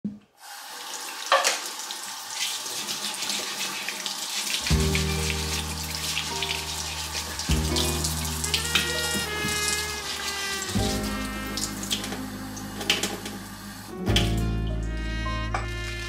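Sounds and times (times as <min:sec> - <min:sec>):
soft music with low chords: 0:04.6 - 0:16.0.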